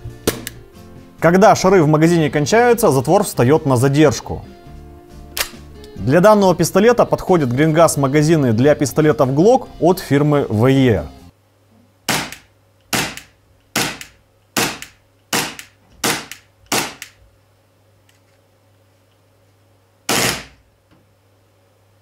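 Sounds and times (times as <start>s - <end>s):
airsoft pistol shots: 12.1s - 17.1s, 20.1s - 20.6s.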